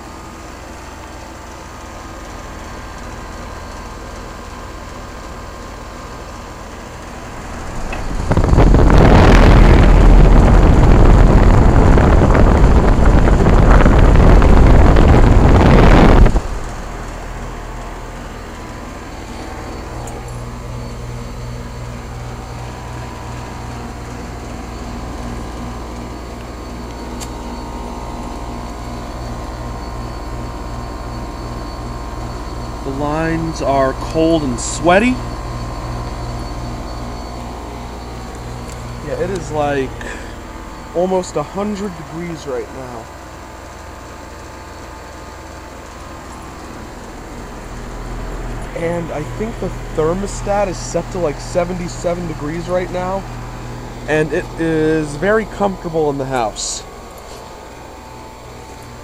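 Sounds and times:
heat pump humming: 0:00.0 - 0:59.0
air rushing across microphone: 0:07.1 - 0:17.7.

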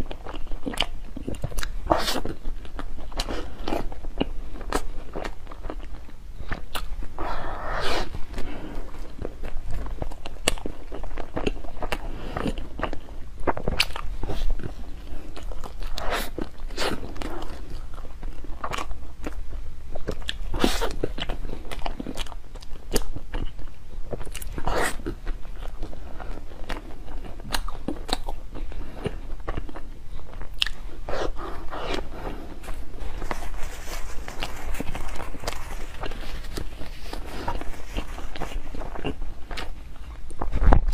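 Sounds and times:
chewing and mouth smacks: 0:09.1 - 0:19.4, 0:20.0 - 0:32.0.

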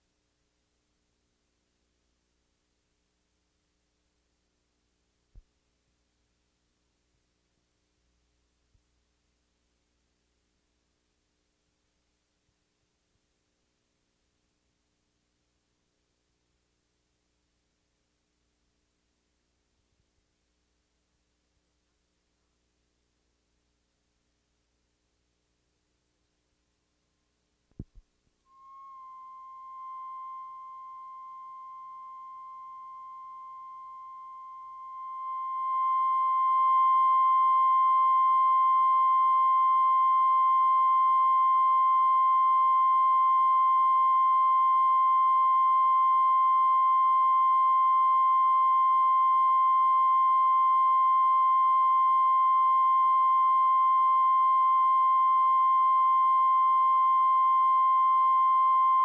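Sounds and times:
steady test tone: 0:27.8 - 0:59.0.

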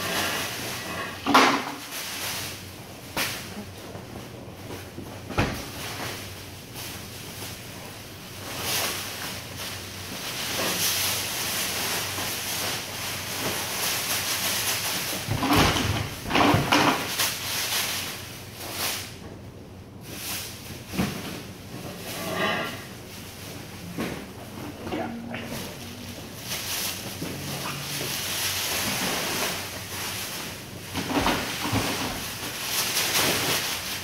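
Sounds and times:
plastic bags rustling: 0:00.0 - 0:34.0
plastic crates knocking and scraping: 0:15.1 - 0:17.2, 0:23.6 - 0:34.0
faint low hum: 0:18.6 - 0:33.8.

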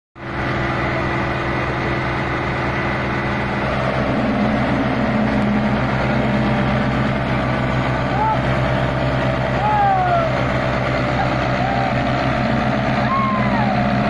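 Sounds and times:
tractor diesel engines straining: 0:00.2 - 0:14.0.

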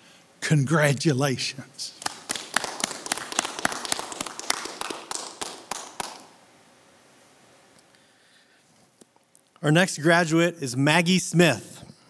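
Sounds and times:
audience applause: 0:02.0 - 0:06.4.

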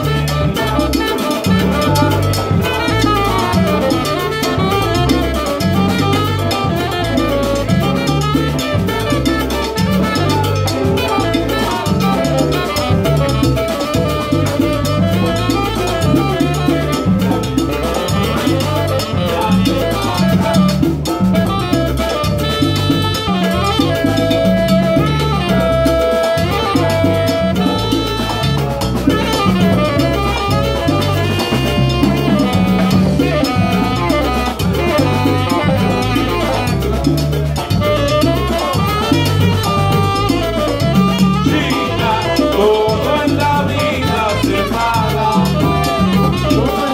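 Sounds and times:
horn lines: 0:00.0 - 0:46.9
salsa band playing: 0:00.0 - 0:46.9.

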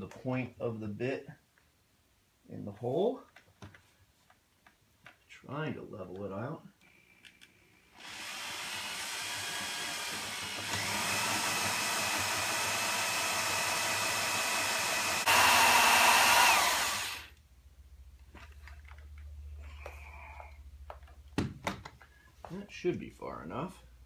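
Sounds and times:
power drill boring into wood: 0:08.0 - 0:17.4.

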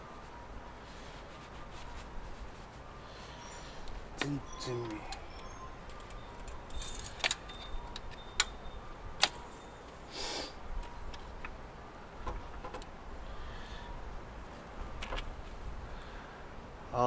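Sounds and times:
short rustle: 0:00.2 - 0:05.1.

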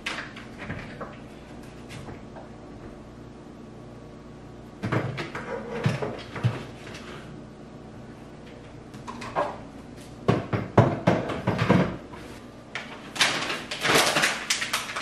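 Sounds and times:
cabinet door knocking shut: 0:10.3 - 0:12.0
paper packaging rustling: 0:12.8 - 0:15.0.

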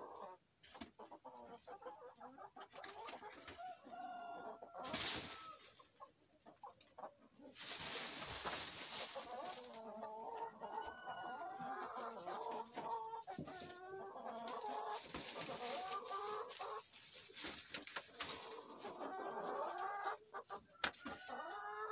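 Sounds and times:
hens clucking: 0:00.0 - 0:21.9.

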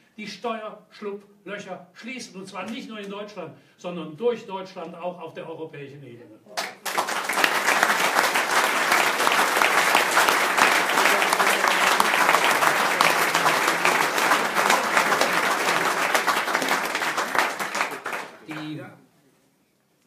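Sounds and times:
audience applauding: 0:06.6 - 0:18.8.

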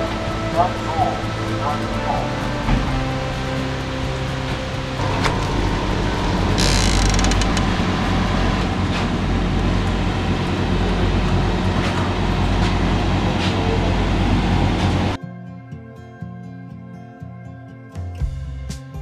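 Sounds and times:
freezer hum and fan: 0:00.0 - 0:15.2
glass door opening hiss: 0:04.5 - 0:09.2.

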